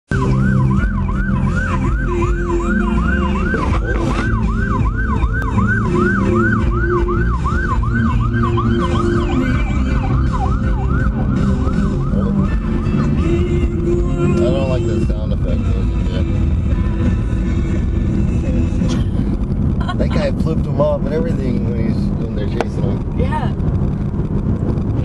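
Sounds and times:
police siren yelping: 0.1s - 13.8s
car engine low rumble: 0.1s - 25.0s.

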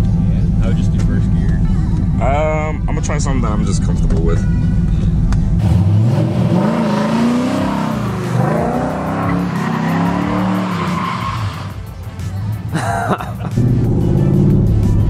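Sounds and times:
car engine revving: 0.0s - 12.3s, 13.4s - 15.0s
tyres squealing: 8.9s - 11.8s.

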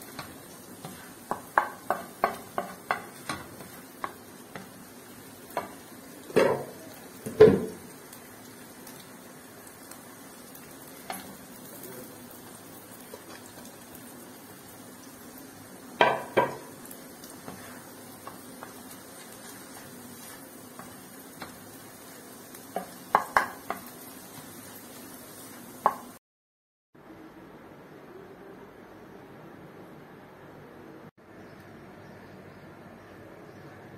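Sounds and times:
spatula stirring in a wok: 0.0s - 6.3s, 16.4s - 26.1s
faint frying sizzle: 0.0s - 26.2s
spatula knocking against pan: 1.2s - 4.2s, 16.0s - 16.7s, 22.8s - 23.9s.

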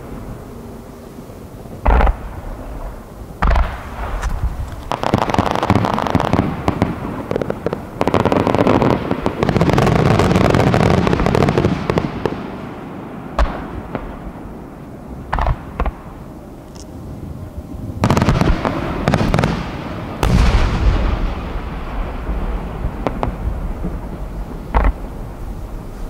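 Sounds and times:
loud firework boom: 20.2s - 25.0s.

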